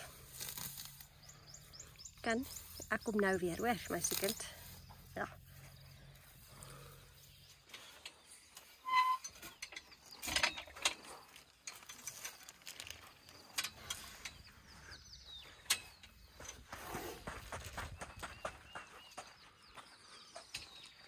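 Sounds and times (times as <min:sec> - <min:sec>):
short squeak: 0:08.8 - 0:09.5.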